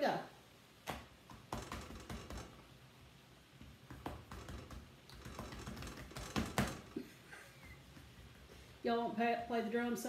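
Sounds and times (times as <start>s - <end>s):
hand slapping dough: 0.8s - 2.6s, 3.6s - 7.0s
hands patting dough: 0.8s - 2.6s, 3.6s - 7.0s, 7.7s - 8.8s.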